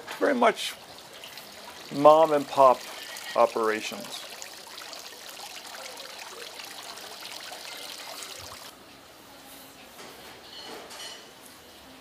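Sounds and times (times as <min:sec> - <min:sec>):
fountain water splashing: 0:00.3 - 0:08.7.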